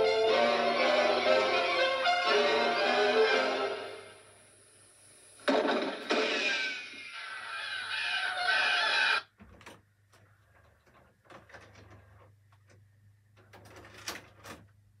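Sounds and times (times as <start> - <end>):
film soundtrack music: 0.0 - 4.4.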